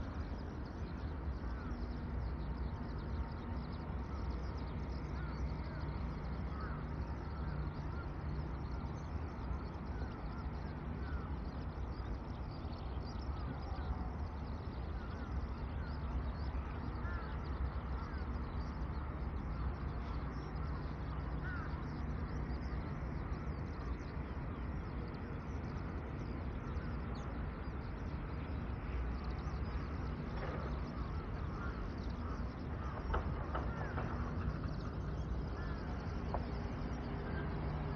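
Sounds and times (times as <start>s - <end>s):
steady low hum: 0.0s - 37.9s
crows cawing: 6.5s - 8.1s, 16.6s - 18.4s, 21.4s - 21.8s, 30.8s - 36.5s.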